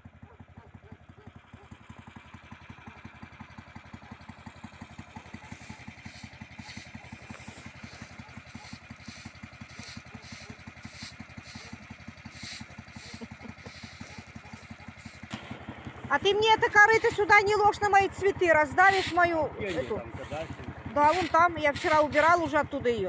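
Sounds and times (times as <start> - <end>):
small engine idling: 0.0 - 23.0.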